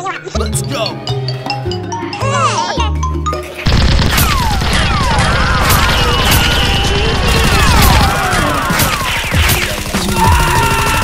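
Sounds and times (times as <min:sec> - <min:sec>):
falling zaps: 0:03.7 - 0:11.0
rapid-fire blaster shots: 0:03.7 - 0:11.0.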